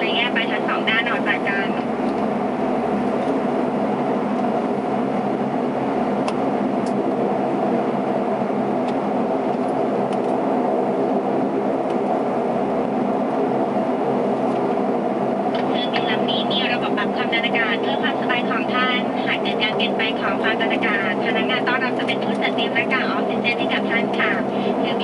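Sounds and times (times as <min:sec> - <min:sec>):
turboprop engines humming in cabin: 0:00.0 - 0:25.0.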